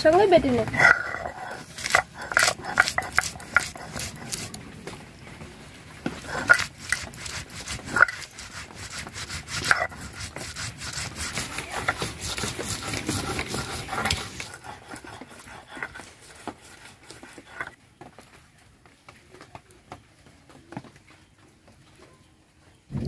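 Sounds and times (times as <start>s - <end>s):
stone roller grinding on stone: 0.0s - 4.6s, 6.0s - 17.8s.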